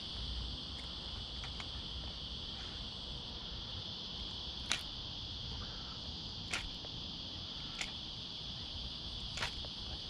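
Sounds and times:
insects droning: 0:00.0 - 0:10.0
faint ticks: 0:07.6 - 0:08.0.

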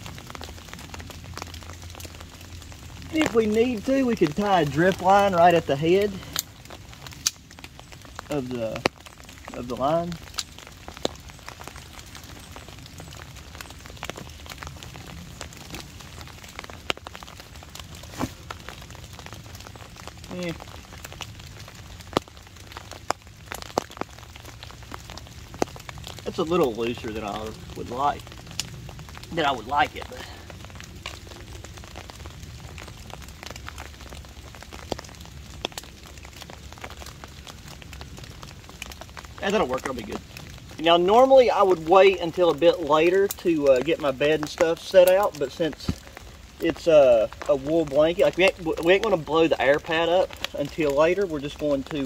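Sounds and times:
rain tapping on canvas tarp: 0:00.0 - 0:52.0
sharp ticks and pops: 0:00.0 - 0:52.0.

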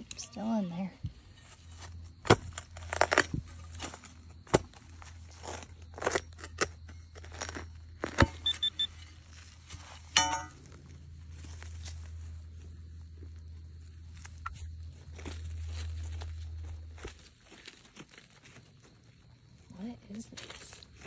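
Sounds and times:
shovel digging into soil: 0:02.2 - 0:09.2
high electronic beeps: 0:08.2 - 0:08.9
metal detector buzzing tone: 0:08.2 - 0:09.1.

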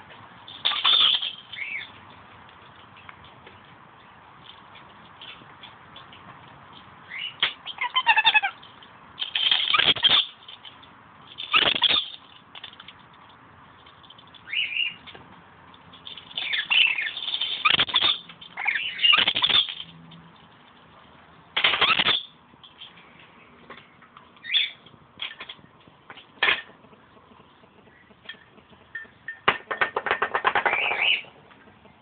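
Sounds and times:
parrot screeching: 0:07.1 - 0:08.6, 0:16.4 - 0:19.8.

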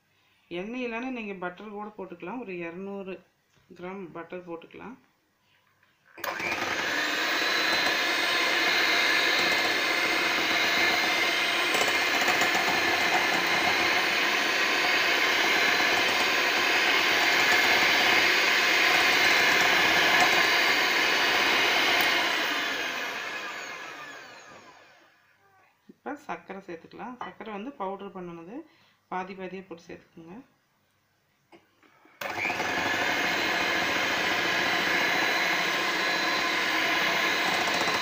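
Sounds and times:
electric hand mixer whirring: 0:06.2 - 0:25.2, 0:32.2 - 0:38.0.

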